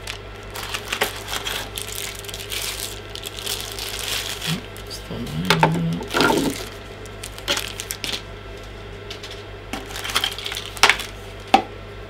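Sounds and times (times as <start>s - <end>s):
packaging rustling in box: 0.0s - 4.9s, 6.0s - 8.2s, 9.8s - 11.4s.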